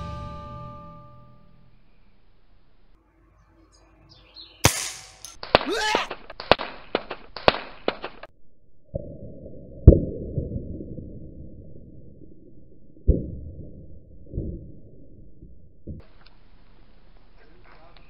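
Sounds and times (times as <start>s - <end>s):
air rifle shot: 4.6s - 5.6s.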